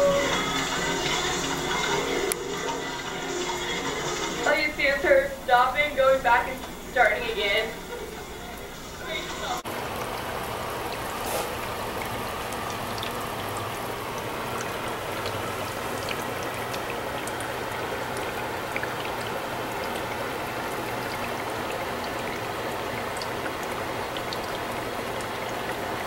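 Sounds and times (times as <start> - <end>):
gas bubbles hissing in water: 7.8 - 26.0.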